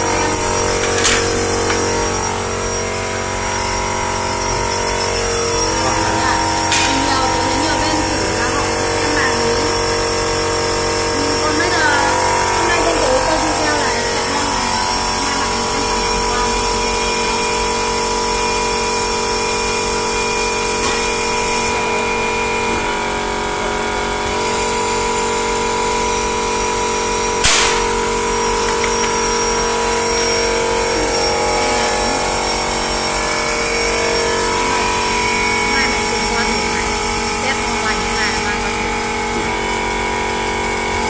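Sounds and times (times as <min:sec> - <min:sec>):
machine whining tones: 0:00.0 - 0:41.0
packaging machinery whirring hum: 0:00.0 - 0:41.0
sharp clack: 0:06.7 - 0:07.2, 0:27.4 - 0:29.2.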